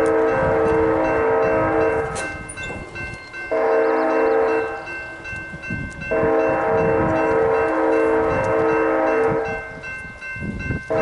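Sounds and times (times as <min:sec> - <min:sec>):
locomotive air horn blasts: 0:00.0 - 0:02.3, 0:03.5 - 0:05.2, 0:06.1 - 0:09.8
low train rumble: 0:00.0 - 0:11.0.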